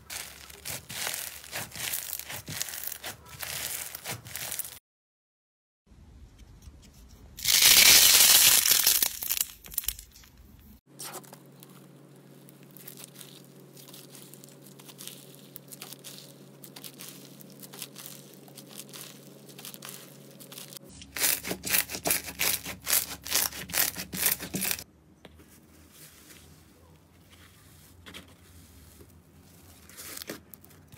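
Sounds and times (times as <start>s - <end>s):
slime crackling and popping: 0.0s - 4.8s, 7.4s - 10.2s, 12.4s - 24.8s
slime stretching with crackles: 0.0s - 4.8s, 7.4s - 10.4s, 11.3s - 24.9s
low steady hum: 9.0s - 30.9s.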